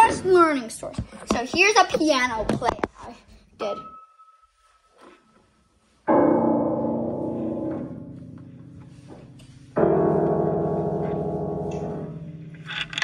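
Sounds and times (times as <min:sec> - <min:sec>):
piano chords: 0:06.1 - 0:13.0.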